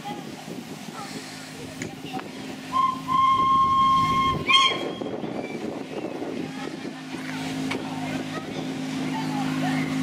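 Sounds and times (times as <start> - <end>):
locomotive whistle: 2.7 - 5.3.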